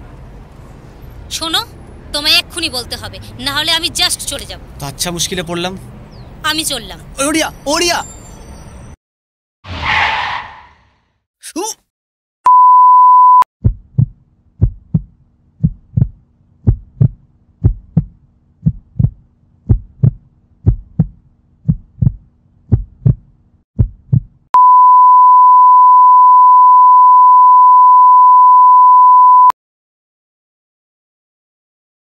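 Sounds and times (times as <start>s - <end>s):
brief high beep: 12.5s - 13.4s, 24.6s - 29.6s
heartbeat thumps: 13.6s - 24.5s
heart monitor flatline tone: 24.6s - 29.5s.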